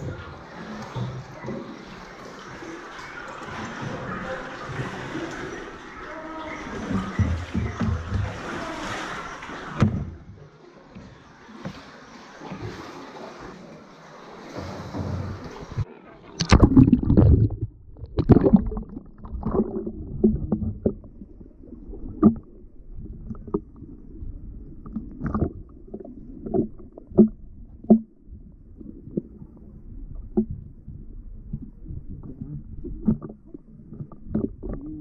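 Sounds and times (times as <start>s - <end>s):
muffled underwater sound: 14.7s - 35.0s
loud splash into water: 16.4s - 19.8s.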